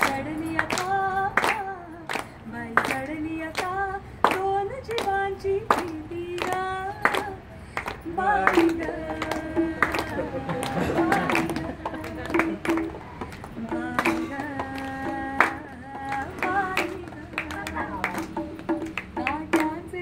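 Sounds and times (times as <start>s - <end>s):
hands clapping: 0.0s - 19.9s
woman singing wordless notes: 13.6s - 20.0s.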